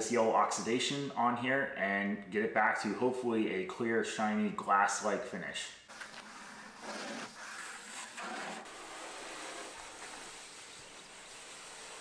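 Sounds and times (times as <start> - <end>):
hose spray hissing on car: 6.2 - 12.0.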